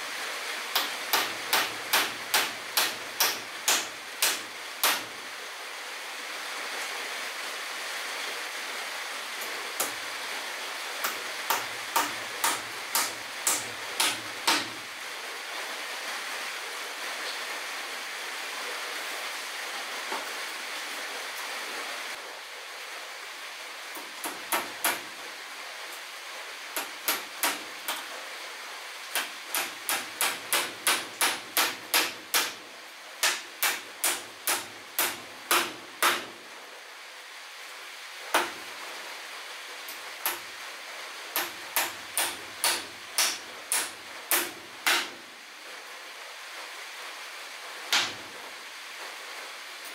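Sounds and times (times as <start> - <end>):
hammer nailing wooden boards: 0.7 - 5.2, 9.8 - 10.0, 11.0 - 14.8, 24.0 - 25.1, 26.8 - 28.1, 29.1 - 32.6, 33.2 - 36.4, 38.3 - 38.6, 40.2 - 40.5, 41.4 - 45.2, 47.9 - 48.2.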